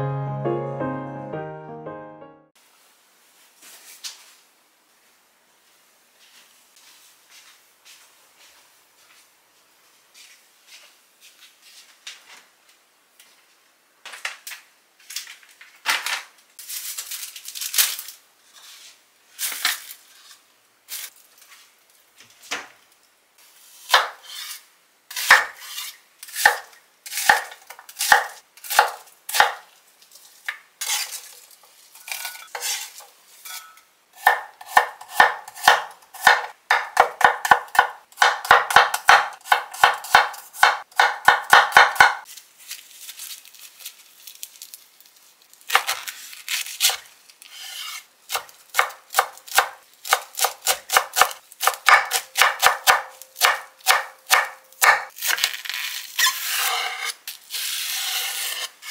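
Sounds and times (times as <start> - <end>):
kitchenware clattering: 32.0 - 33.9.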